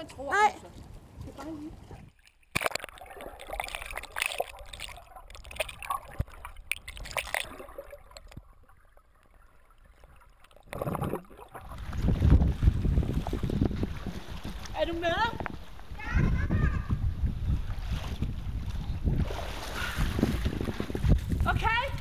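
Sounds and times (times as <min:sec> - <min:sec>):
underwater water sloshing and gurgling: 0:00.8 - 0:21.4
low rushing water: 0:01.0 - 0:22.0
small splashes: 0:01.2 - 0:16.0.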